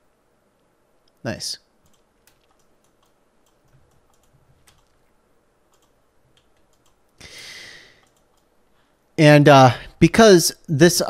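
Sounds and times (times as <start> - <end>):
keyboard and mouse clicks: 1.8 - 5.1, 5.7 - 7.2, 8.0 - 8.5.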